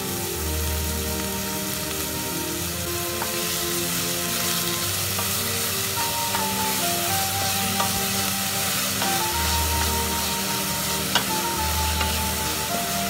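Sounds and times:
background music: 0.0 - 13.0
onions sizzling in a pan: 0.0 - 13.0
spatula stirring: 6.3 - 12.8.

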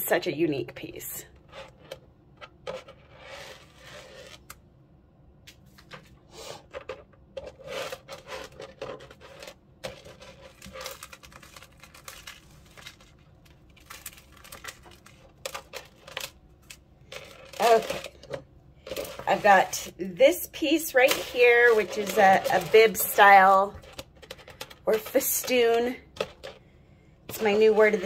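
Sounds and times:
metal chains clinking on plastic tray: 17.1 - 19.8, 21.0 - 26.6.

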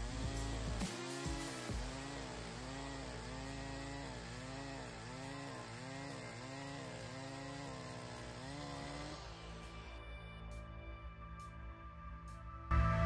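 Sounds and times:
chainsaw cutting log: 0.0 - 10.0.

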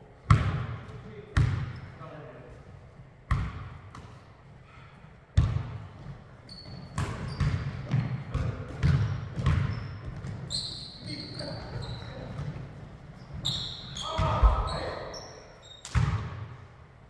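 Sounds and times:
basketball bouncing on wooden floor: 5.4 - 5.8, 6.6 - 10.5
sneaker squeaks on floor: 6.4 - 16.2.

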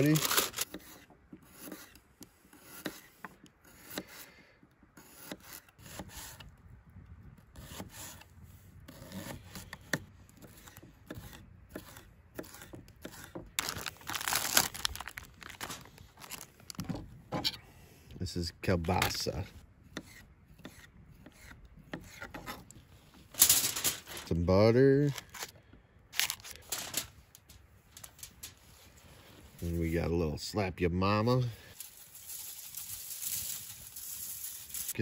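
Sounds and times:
plastic wrapping rustling: 0.0 - 0.7, 13.6 - 16.9, 23.3 - 24.4, 26.2 - 29.4, 31.7 - 35.0.

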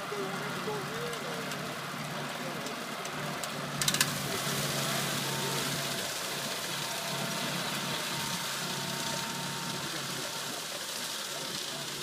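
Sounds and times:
tractor diesel engine running: 0.0 - 12.0
steady hiss: 3.7 - 12.0.

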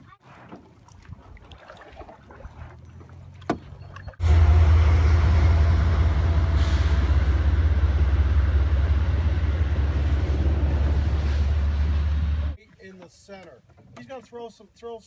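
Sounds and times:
train rumbling over bridge: 4.2 - 12.6.

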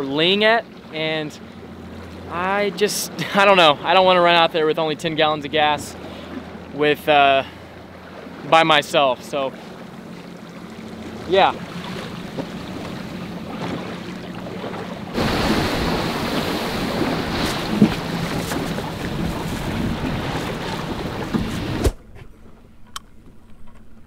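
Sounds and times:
outboard motor humming: 0.0 - 24.0
water noise: 0.0 - 24.0
wind on microphone: 15.1 - 22.2.

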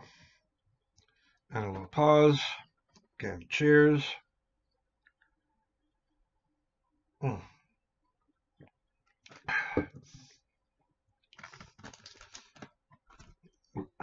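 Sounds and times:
breathy sigh: 7.2 - 7.6, 9.5 - 10.3
man's throat sounds: 7.2 - 7.6.

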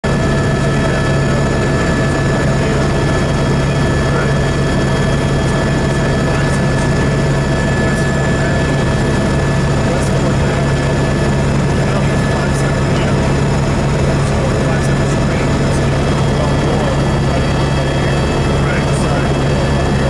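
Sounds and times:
helicopter engine and rotor hum: 0.0 - 20.0
high-pitched whines: 0.1 - 20.0.

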